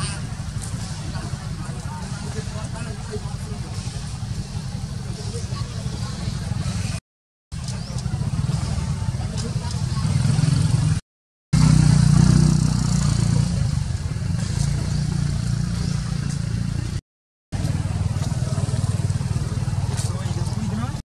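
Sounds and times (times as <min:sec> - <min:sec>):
engine running with low throb: 0:17.6 - 0:21.0.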